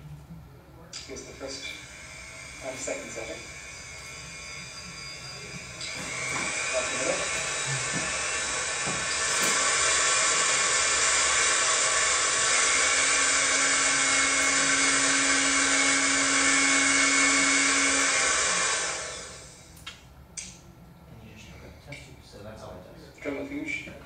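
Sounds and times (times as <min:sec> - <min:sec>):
high whine: 0:00.0 - 0:19.8
rotary tool whirring: 0:01.0 - 0:19.8.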